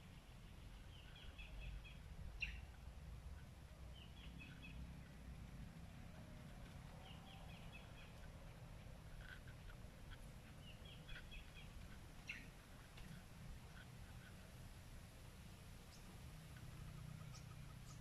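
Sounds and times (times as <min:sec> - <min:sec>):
bird calling: 0:00.5 - 0:02.8, 0:03.9 - 0:05.1, 0:06.1 - 0:14.6, 0:15.8 - 0:18.0.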